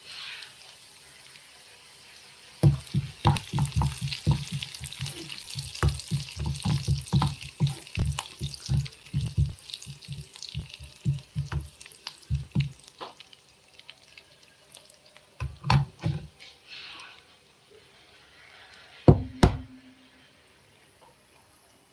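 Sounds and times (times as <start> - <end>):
onions sizzling in oil: 0.0 - 19.0.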